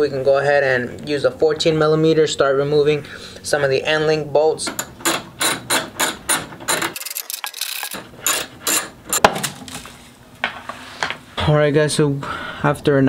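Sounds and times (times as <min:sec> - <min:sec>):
socket ratchet clicking: 0:04.7 - 0:08.9.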